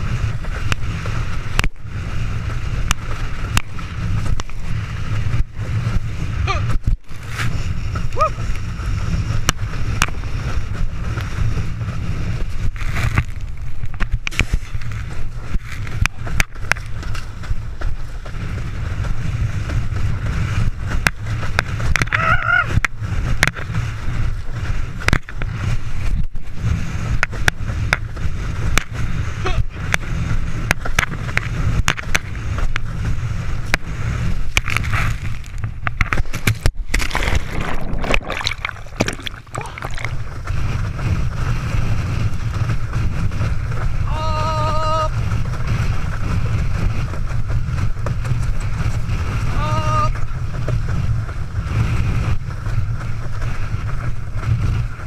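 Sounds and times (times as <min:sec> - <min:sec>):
wind buffeting microphone: 0:00.0 - 0:55.0
rushing water and spray: 0:19.3 - 0:46.9.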